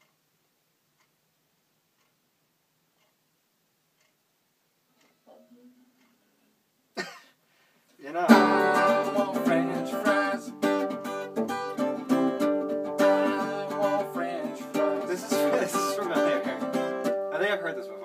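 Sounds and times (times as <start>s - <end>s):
acoustic guitar strumming chords: 8.1s - 18.0s.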